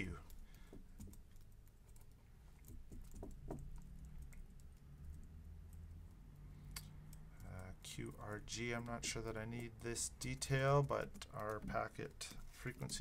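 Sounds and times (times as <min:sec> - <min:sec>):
keyboard keys clicking: 0:08.1 - 0:13.0.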